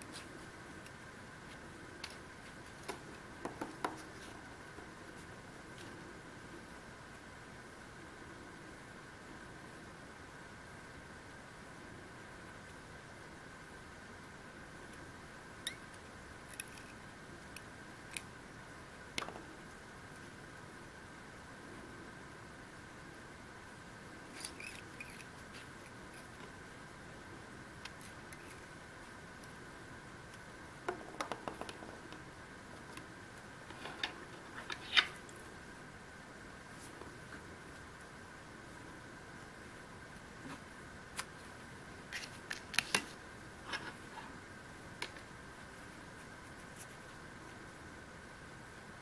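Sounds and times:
faint room hiss: 0.0 - 49.0
faint steady high whine: 0.0 - 49.0
small clicks and scrapes: 16.5 - 17.0, 24.3 - 26.5.

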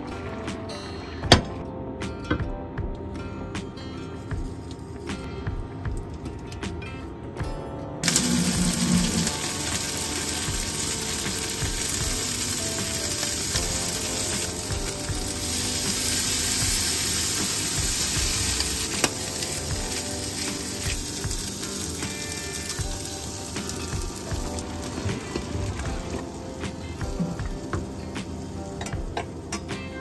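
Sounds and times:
shrimp sizzling in a frying pan: 8.0 - 30.0.

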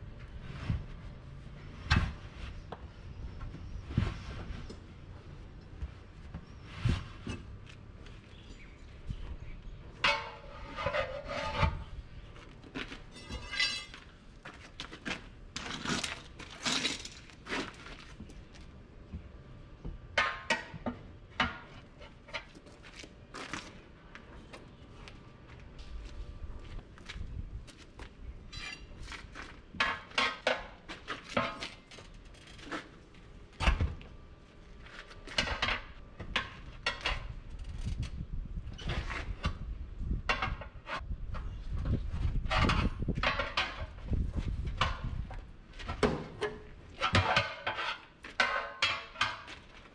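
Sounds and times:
metal tools clanking on steel rim: 13.1 - 14.0.

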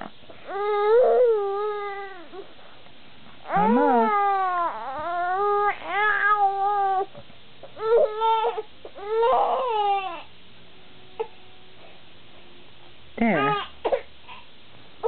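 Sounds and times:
baby crying: 0.5 - 2.4, 3.5 - 7.1, 7.8 - 10.3.

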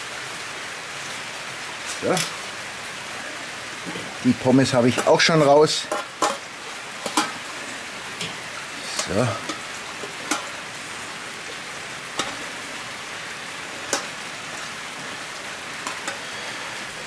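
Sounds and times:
steady hiss: 0.0 - 17.0
metal tongs clicking on grill: 10.3 - 10.5.

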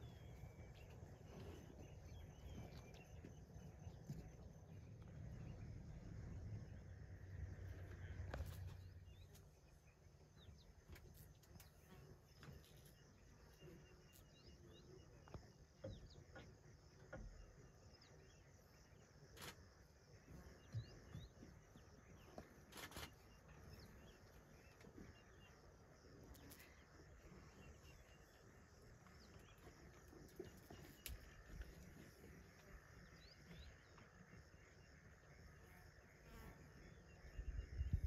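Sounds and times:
faint bird chirps: 0.0 - 38.0
insect calls: 0.0 - 38.0.

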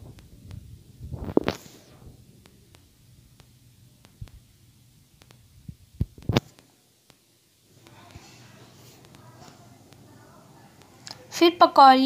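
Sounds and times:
low hum: 0.0 - 6.4.

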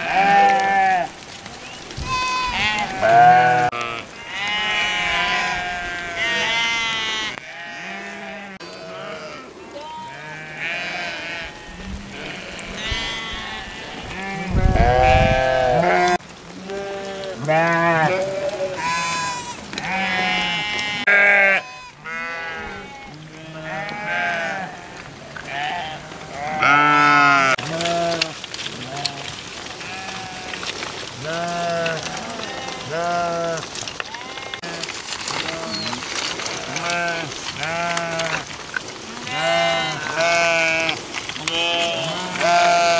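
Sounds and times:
sheep bleating: 0.0 - 1.2, 2.0 - 38.5, 39.2 - 42.9.

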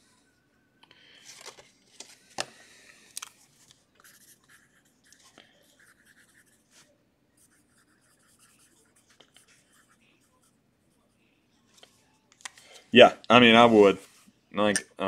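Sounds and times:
pen scratching on paper: 4.0 - 10.5.

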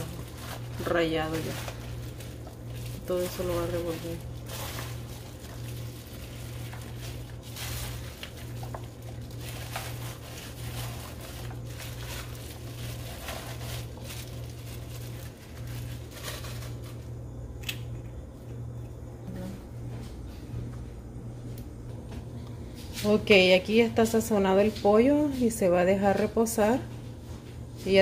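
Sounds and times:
plastic bag crinkling: 0.0 - 17.1
low hum: 0.0 - 28.0
wet squishing of meat by hand: 4.2 - 15.0.

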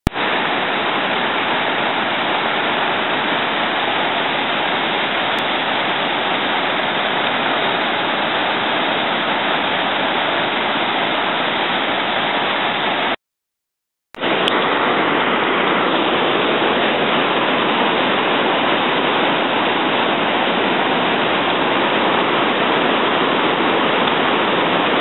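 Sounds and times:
waterfall roaring: 0.1 - 13.2, 14.2 - 25.0.

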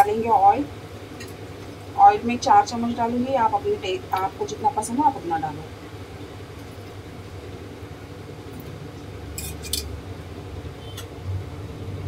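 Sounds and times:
low burner hum: 0.0 - 12.0
kitchen utensils clinking: 9.4 - 9.9.

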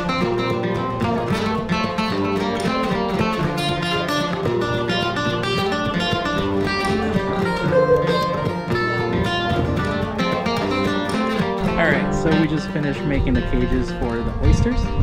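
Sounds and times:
plucked guitar music: 0.0 - 15.0.

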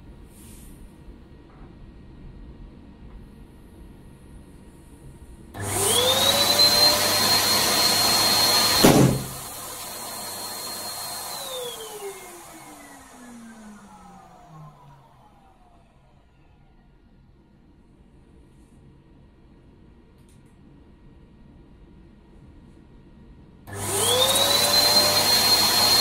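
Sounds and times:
electric balloon pump whine: 5.6 - 16.7, 23.7 - 26.0
balloon bursting with loud pop: 8.7 - 9.5.

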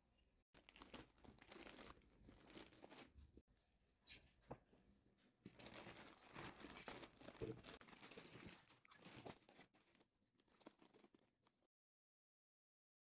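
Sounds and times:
plastic bag crinkling: 0.5 - 3.4, 5.5 - 11.7.

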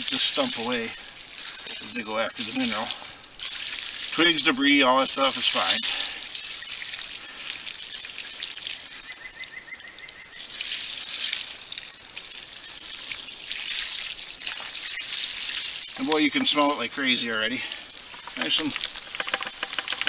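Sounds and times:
slurry pouring and splashing: 0.0 - 9.0, 10.4 - 16.7.

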